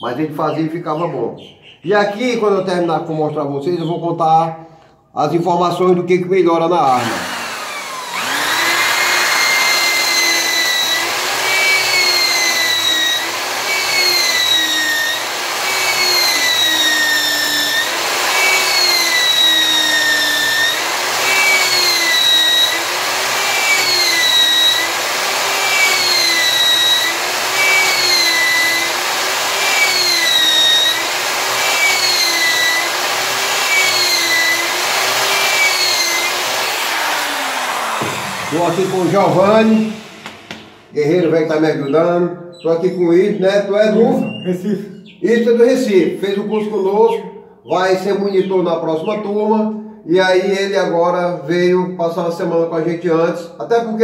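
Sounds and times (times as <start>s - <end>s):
electric drill motor whine: 6.9s - 40.9s.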